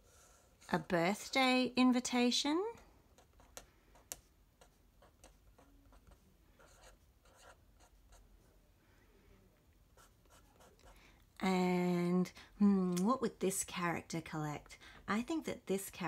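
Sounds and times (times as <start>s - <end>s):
marker pen scratching on paper: 3.2s - 8.3s, 10.0s - 10.9s.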